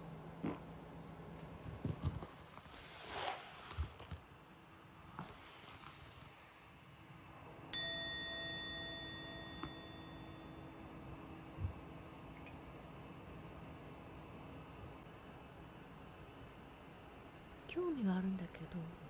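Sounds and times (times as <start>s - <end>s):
bell-like chime: 7.7s - 10.9s
faint vibrating toy buzz: 7.8s - 11.0s.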